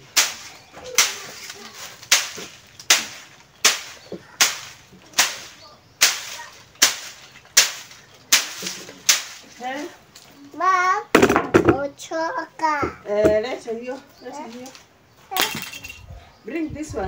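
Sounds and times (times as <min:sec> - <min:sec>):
stick whacking dried plants: 0:00.0 - 0:10.2.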